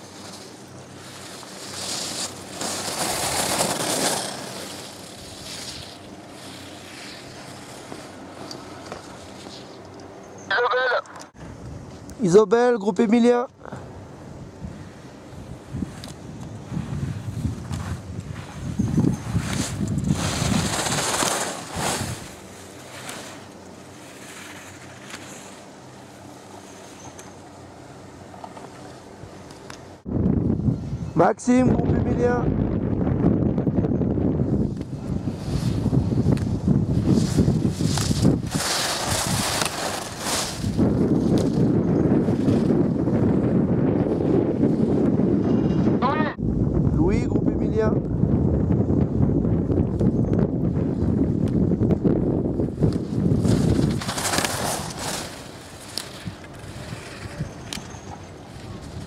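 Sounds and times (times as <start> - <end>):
skis swooshing on snow: 0.0 - 9.8, 15.6 - 27.1, 34.5 - 43.5, 52.6 - 59.0
wind buffeting microphone: 13.8 - 24.0, 30.0 - 59.0.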